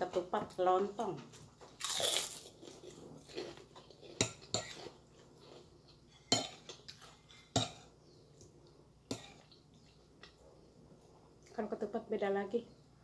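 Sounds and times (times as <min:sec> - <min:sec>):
cutlery scraping a ceramic plate: 0:02.7 - 0:07.9.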